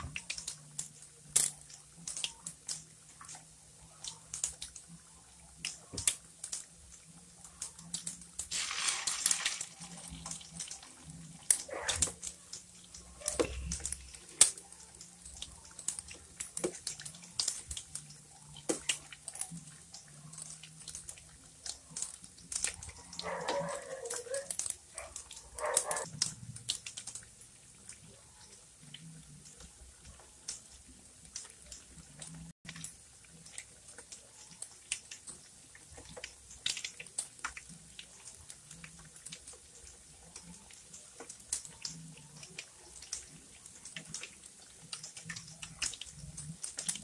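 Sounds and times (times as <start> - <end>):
hot oil crackling and popping: 0.0 - 47.0
oil sizzling: 8.2 - 20.1.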